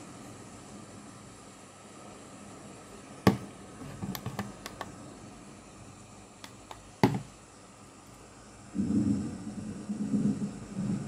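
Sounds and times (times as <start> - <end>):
steady hiss: 0.0 - 11.0
toy car handling knocks: 3.3 - 4.9, 7.0 - 7.3
light clicks and taps: 3.3 - 5.0.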